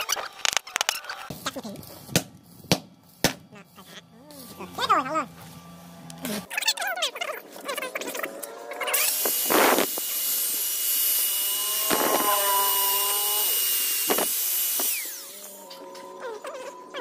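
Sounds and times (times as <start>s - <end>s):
angle grinder whine: 3.5s - 6.5s, 7.5s - 17.0s.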